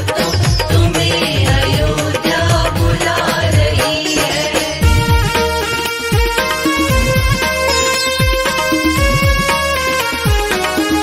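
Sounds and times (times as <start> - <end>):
deep drum hits: 4.8 - 5.5.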